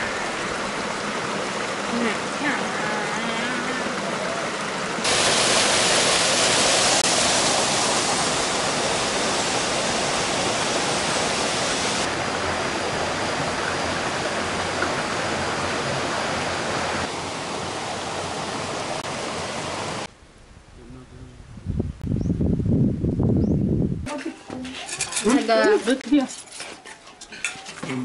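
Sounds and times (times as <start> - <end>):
rushing water: 0.0 - 20.1.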